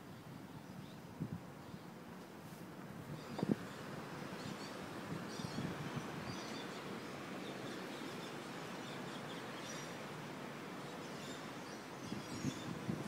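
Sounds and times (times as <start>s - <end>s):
city background noise: 0.0s - 13.0s.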